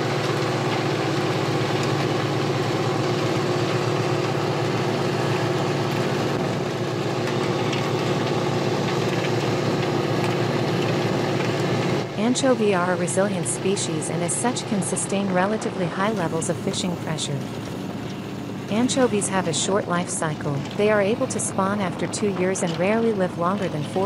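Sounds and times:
boat engine drone: 0.0 - 24.0.

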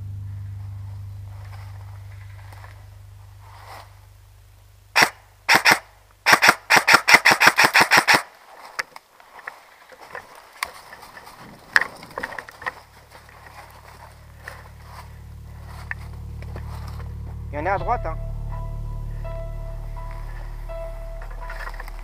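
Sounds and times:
rustles and clicks in dry leaves: 0.2 - 4.1, 6.4 - 17.5, 21.2 - 22.0
airsoft gun shots: 5.0 - 8.3.

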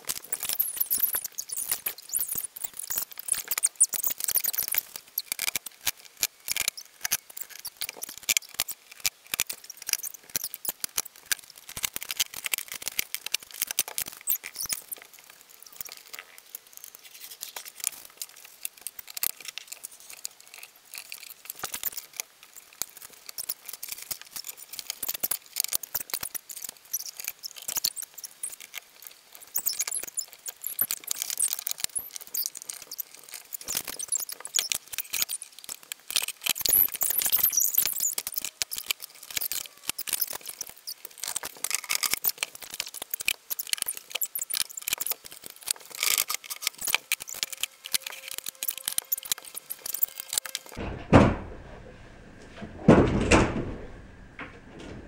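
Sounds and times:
furniture assembly clatter: 50.8 - 55.0.

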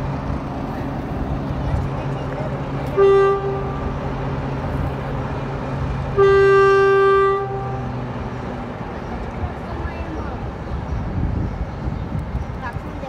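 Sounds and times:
train horn blast: 2.9 - 4.0, 6.1 - 8.0.

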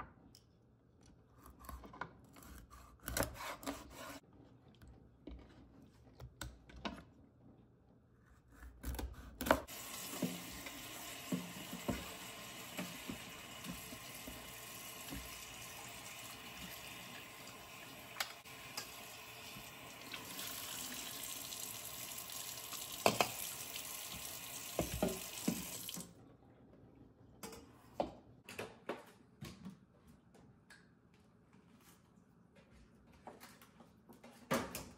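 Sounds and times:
water running into metal bowl: 9.7 - 26.1.

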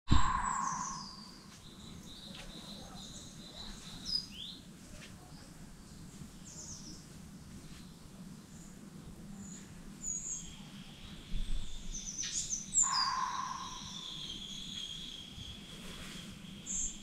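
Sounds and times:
birds chirping and whistling: 0.1 - 4.4, 11.6 - 15.7
low background noise: 0.1 - 17.0.

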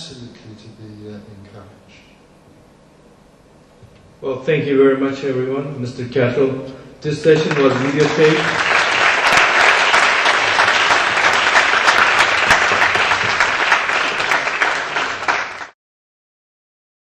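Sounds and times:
audience applauding: 7.2 - 15.8.

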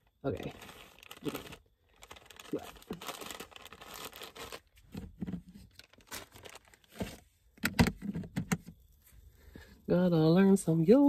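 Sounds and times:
plastic packet crinkling: 0.3 - 4.8, 5.7 - 6.9.

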